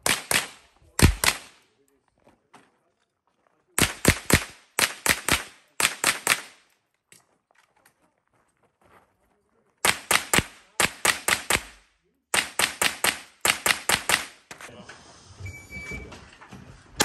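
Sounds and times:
rifle gunshots: 0:00.0 - 0:01.6, 0:03.8 - 0:06.6, 0:09.8 - 0:14.4.

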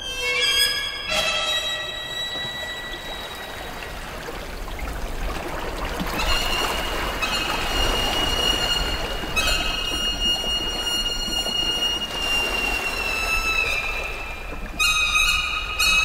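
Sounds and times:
high held violin-like note: 0:00.0 - 0:03.7
water splashing over rocks: 0:02.5 - 0:14.8.

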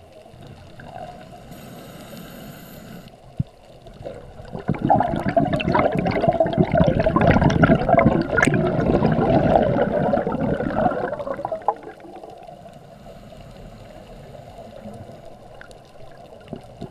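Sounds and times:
steady underwater hush: 0:00.0 - 0:16.9
underwater air bubbling: 0:00.0 - 0:16.9.

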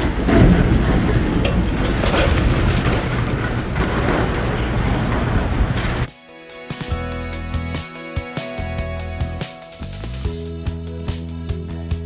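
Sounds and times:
excavator heavy rumble: 0:00.0 - 0:06.1
falling concrete debris crashing: 0:00.0 - 0:06.1.

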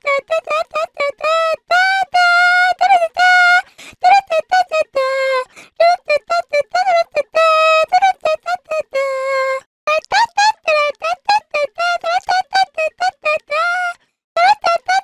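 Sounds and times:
high-pitched girl singing unaccompanied: 0:00.0 - 0:15.0.

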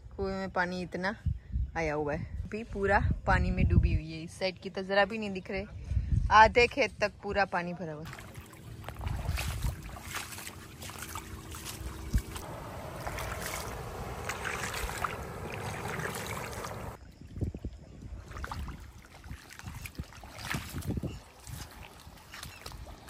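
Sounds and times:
wind rumbling on microphone: 0:01.2 - 0:04.2, 0:05.6 - 0:07.3, 0:08.1 - 0:23.0
water flowing and rippling: 0:08.0 - 0:23.0.

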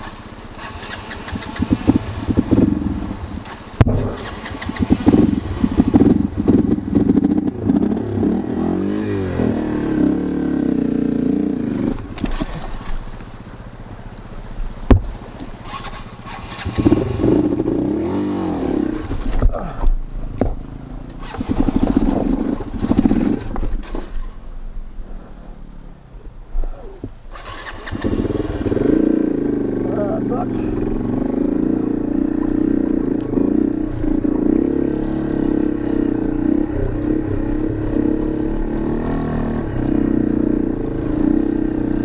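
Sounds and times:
motorcycle engine revving: 0:00.0 - 0:24.4, 0:27.3 - 0:42.0
sharp knocks: 0:14.9 - 0:15.2.

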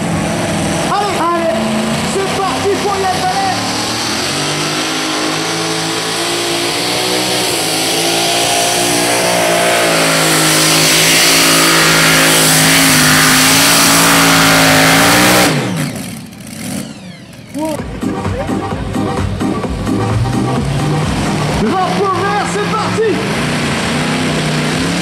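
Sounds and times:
tractor engine at full throttle: 0:00.0 - 0:25.0.

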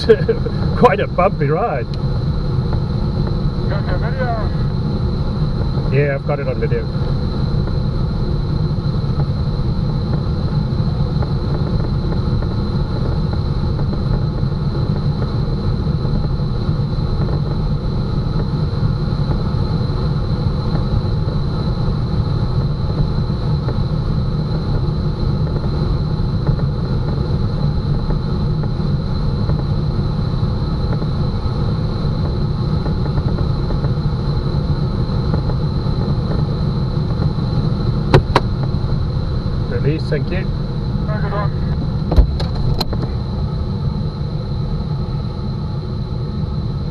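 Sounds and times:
distant plane engine droning: 0:00.0 - 0:46.9
wind rushing over glider cockpit: 0:00.0 - 0:46.9
steady high tone: 0:03.5 - 0:05.1, 0:39.7 - 0:41.9.

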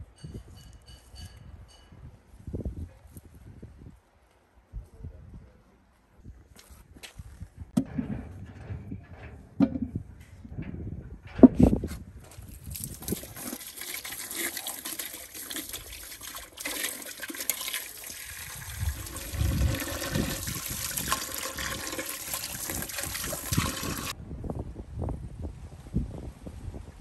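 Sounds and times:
water pouring into a metal pot: 0:12.5 - 0:24.1.

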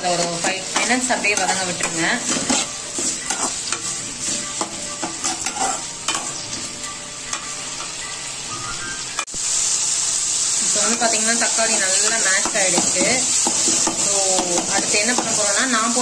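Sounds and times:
metal spatula scraping pan: 0:00.0 - 0:08.8
vegetables sizzling in oil: 0:00.0 - 0:16.0.

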